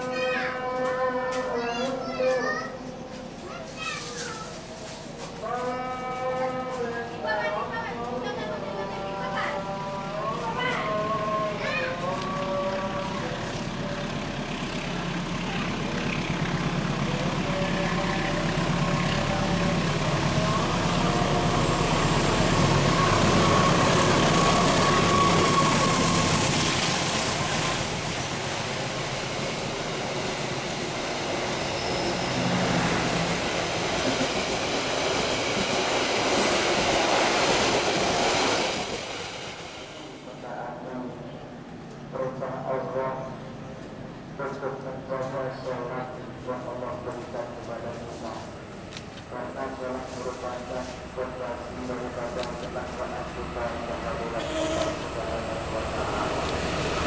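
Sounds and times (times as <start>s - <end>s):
train wheels on rails: 0.0s - 40.4s, 46.6s - 57.0s
diesel engine rumble: 9.9s - 35.3s.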